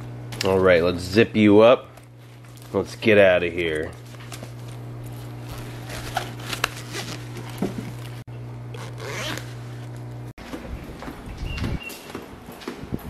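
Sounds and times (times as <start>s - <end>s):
steady low hum: 0.0s - 13.0s
zipper being pulled shut: 8.7s - 9.6s.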